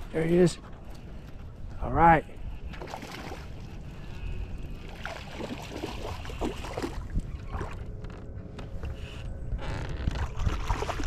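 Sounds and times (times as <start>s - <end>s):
wind rumble on microphone: 0.0s - 11.0s
water sloshing against boat hull: 2.4s - 11.0s.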